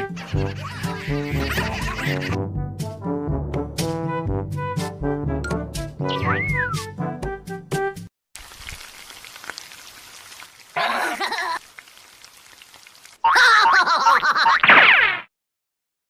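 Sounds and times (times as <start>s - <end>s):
cartoon voice: 0.0s - 2.4s, 13.2s - 14.2s
brass music: 1.3s - 8.1s
meat sizzling on grill: 8.4s - 13.2s.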